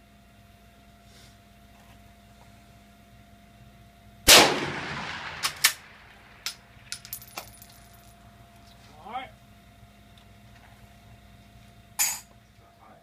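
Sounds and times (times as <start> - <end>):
rifle shot: 4.3 - 6.6
light metallic clinks: 6.5 - 8.2.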